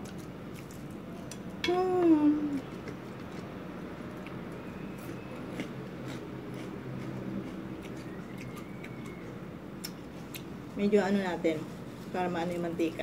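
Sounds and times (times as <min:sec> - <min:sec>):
chewing crunchy fried food: 0:00.0 - 0:01.6, 0:02.6 - 0:10.8
steady low hum: 0:00.0 - 0:13.0.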